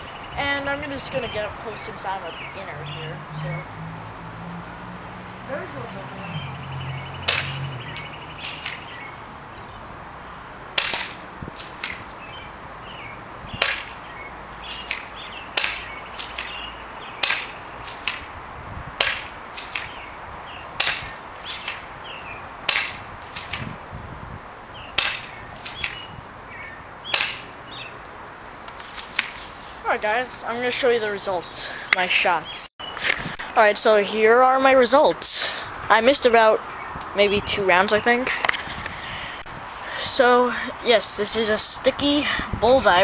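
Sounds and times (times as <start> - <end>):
airsoft pistol shots: 10.8 - 12.0, 13.6 - 14.0, 14.6 - 16.6, 17.2 - 18.3, 19.0 - 20.0, 20.8 - 21.8, 22.7 - 23.7, 25.0 - 26.0, 27.1 - 27.5.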